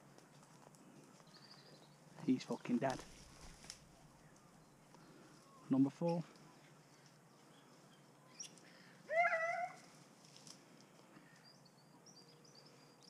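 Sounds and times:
faint bird chirps: 0:01.1 - 0:02.7, 0:03.9 - 0:09.8, 0:11.1 - 0:13.0
dog whining: 0:09.1 - 0:09.8.

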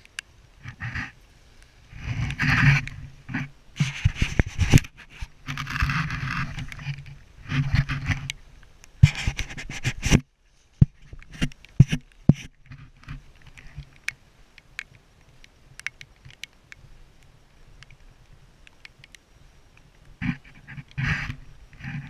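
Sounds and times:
scraping against microphone: 0:00.6 - 0:08.4, 0:09.0 - 0:13.9, 0:20.2 - 0:22.0.

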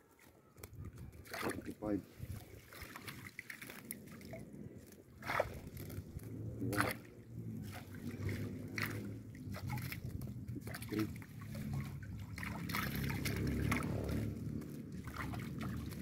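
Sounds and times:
water sloshing and splashing: 0:00.0 - 0:16.0
steady low hum: 0:04.5 - 0:16.0.

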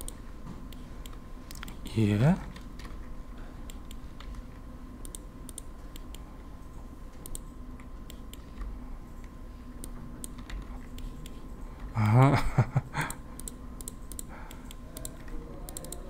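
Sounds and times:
keyboard and mouse clicks: 0:00.0 - 0:01.8, 0:03.7 - 0:06.2, 0:07.2 - 0:11.9, 0:13.1 - 0:16.0
faint electrical hum: 0:00.0 - 0:16.0.

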